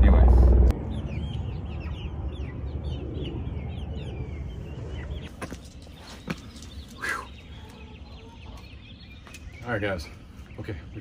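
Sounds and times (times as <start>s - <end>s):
low rumble: 0.0s - 5.3s
chickens chirping: 0.8s - 11.0s.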